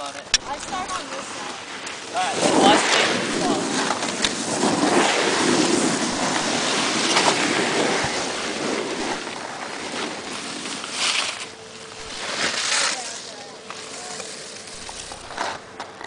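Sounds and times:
wind buffeting microphone: 1.6 - 10.3.

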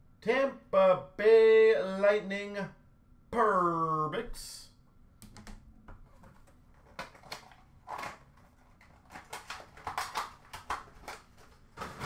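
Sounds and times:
cards and packaging rustling: 6.0 - 12.0.

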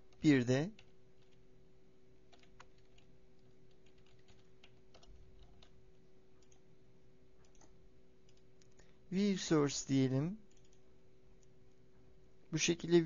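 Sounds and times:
faint keyboard typing: 0.0 - 1.6, 2.2 - 9.0, 10.3 - 12.0
low steady hum: 0.0 - 13.0.

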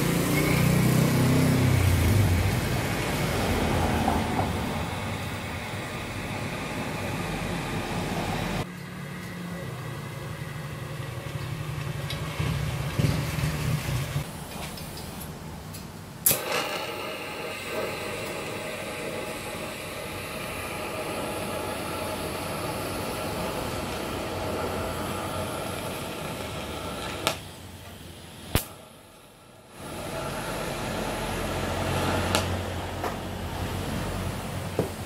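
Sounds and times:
welding arc buzzing and hissing: 0.0 - 9.3, 16.2 - 35.0
welder clicks: 15.8 - 17.0.

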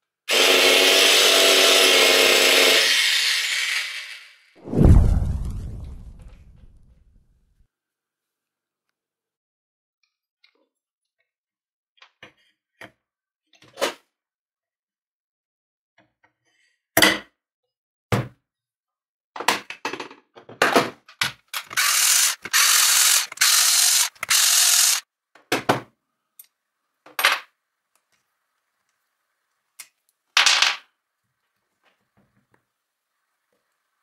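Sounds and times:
steady mechanical noise: 21.6 - 25.0.

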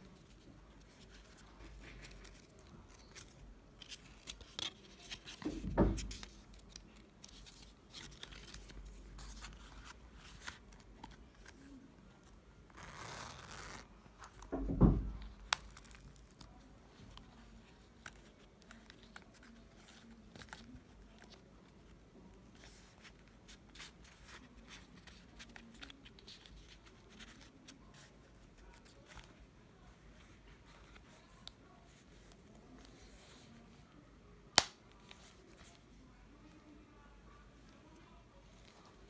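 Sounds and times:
wallet handling clicks and rustles: 0.0 - 14.5, 15.2 - 29.4.

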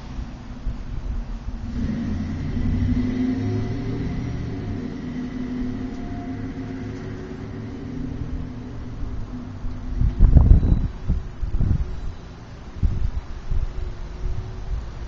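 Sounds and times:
vehicle engine passing by: 1.5 - 11.2.

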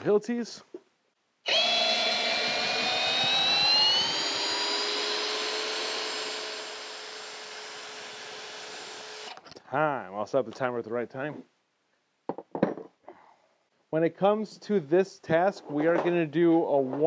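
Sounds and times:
cordless drill whining: 1.4 - 9.4.

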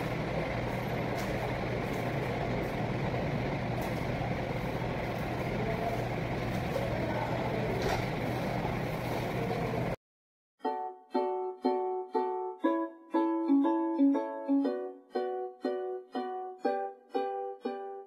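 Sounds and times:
kitchen mechanical drone: 0.0 - 10.0.

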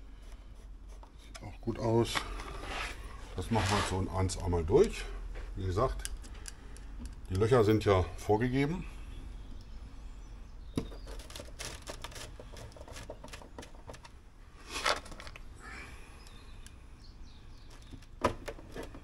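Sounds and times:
short scrape: 2.5 - 4.1.

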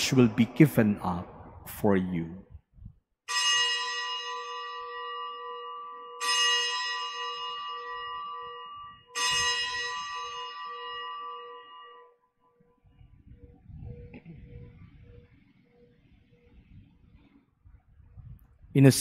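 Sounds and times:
altar bell ringing: 3.3 - 16.6.

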